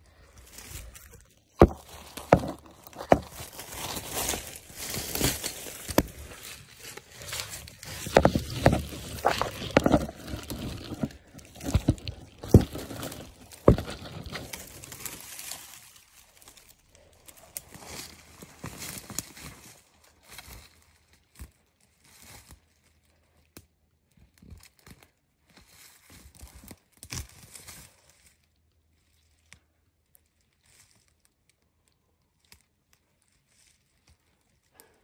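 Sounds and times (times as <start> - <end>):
footsteps through dry brush: 0.0 - 22.8
twigs snapping underfoot: 0.0 - 28.4.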